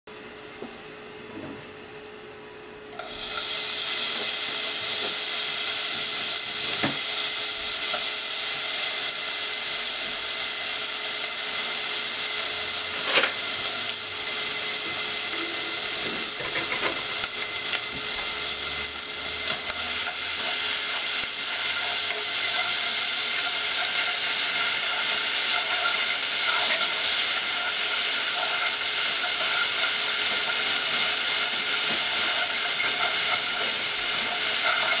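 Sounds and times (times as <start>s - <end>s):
bacon sizzling in a pot: 2.9s - 35.0s
chopsticks stirring on a pot: 14.7s - 35.0s.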